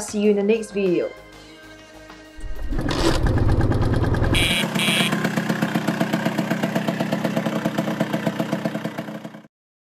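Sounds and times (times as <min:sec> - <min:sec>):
scooter engine idling: 0:02.4 - 0:09.5
short high beeps: 0:04.4 - 0:05.2.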